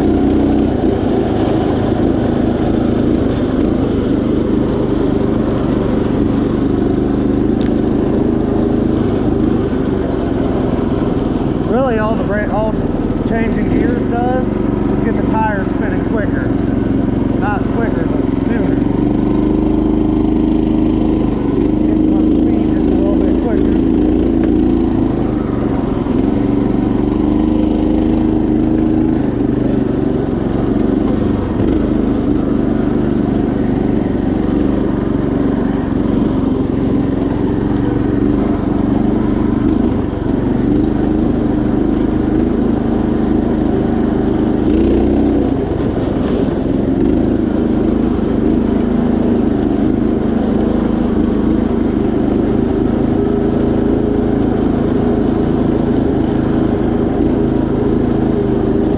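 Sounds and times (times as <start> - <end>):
riding mower engine running: 0.0 - 58.9.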